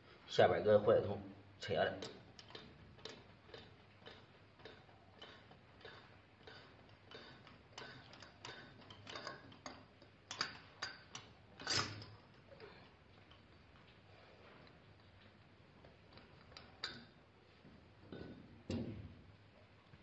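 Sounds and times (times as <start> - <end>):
wrench clicking on steel: 2.0 - 12.2.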